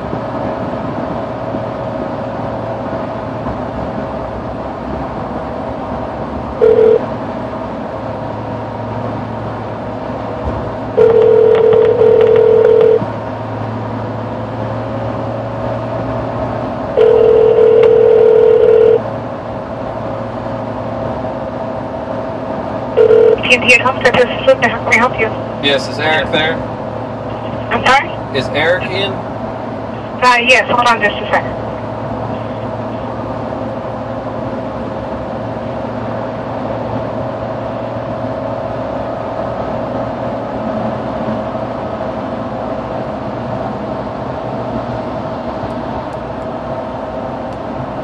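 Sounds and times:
car cabin drone: 0.0 - 48.0
telephone ringback tone: 6.6 - 7.0, 11.0 - 13.0, 17.0 - 19.0, 23.0 - 23.4.

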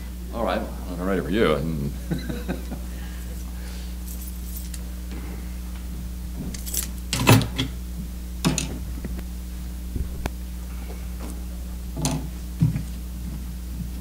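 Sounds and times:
low electrical hum: 0.0 - 14.0
knocks and rustles: 5.9 - 9.3, 9.9 - 10.4.

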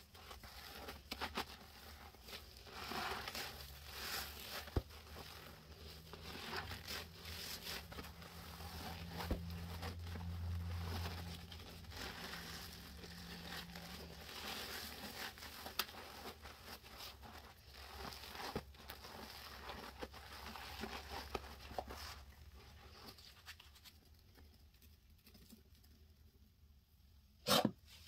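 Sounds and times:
wet squishing of foam: 0.0 - 23.2.

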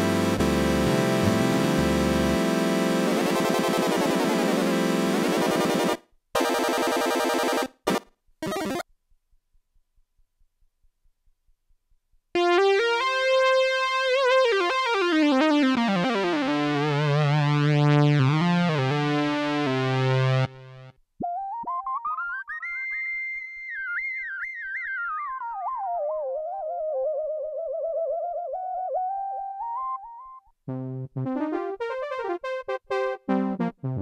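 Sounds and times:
buzzy synthesizer falling in pitch: 0.0 - 6.0, 12.4 - 34.0
synthesizer bass: 0.0 - 6.0.

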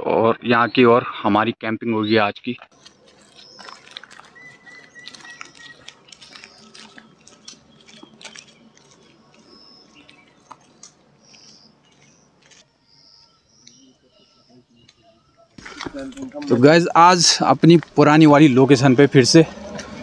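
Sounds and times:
footsteps on wet road: 2.7 - 13.8, 15.6 - 18.3
faint bird chirps: 2.8 - 15.6.

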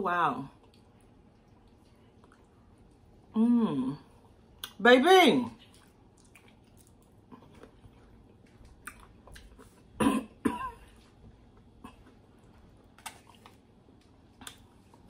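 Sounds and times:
person chewing: 0.6 - 3.3, 5.6 - 10.0, 10.8 - 15.0
person coughing: 10.0 - 10.9.

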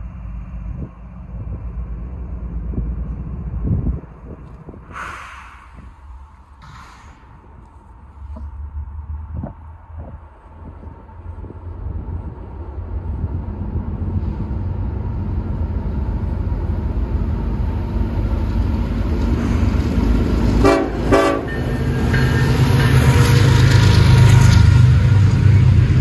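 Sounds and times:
diesel locomotive engine rumble: 0.0 - 26.0
locomotive horn blasts: 20.6 - 21.7.

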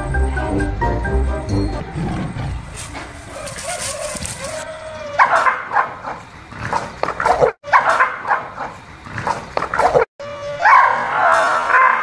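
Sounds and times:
dog barking: 3.3 - 4.6, 5.2 - 6.3, 7.2 - 8.8, 10.6 - 12.0.

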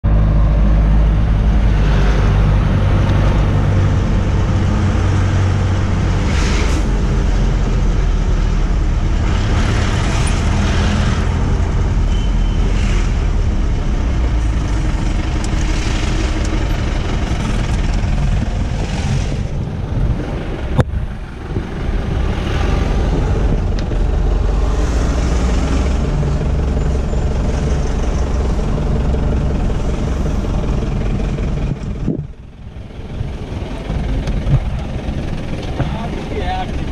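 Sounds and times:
engine and road rumble: 0.0 - 36.9.

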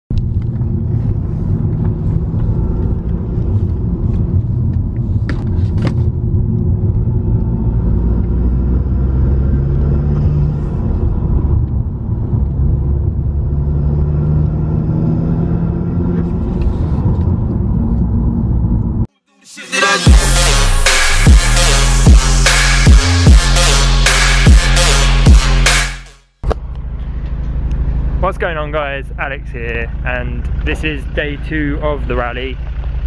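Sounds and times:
car engine accelerating: 0.1 - 19.1, 20.0 - 33.0
road noise inside car: 0.1 - 19.1, 26.4 - 33.0.

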